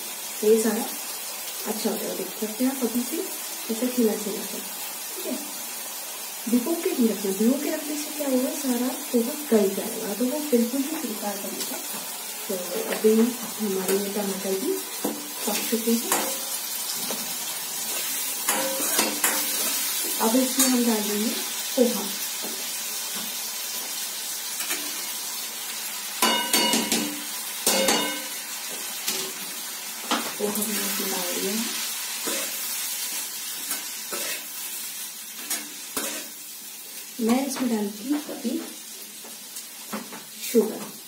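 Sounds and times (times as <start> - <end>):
vegetables sizzling in a pan: 0.0 - 41.0
wooden spatula scraping a pan: 32.2 - 32.7, 33.6 - 34.5, 35.4 - 36.4.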